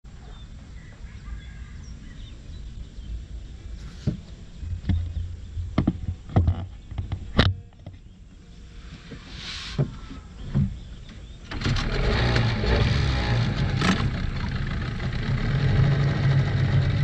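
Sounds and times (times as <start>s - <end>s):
faint bird chirps: 0.1s - 5.7s
low wind rumble: 0.1s - 17.0s
knocks and thumps in a boat: 4.0s - 8.2s, 9.8s - 11.3s.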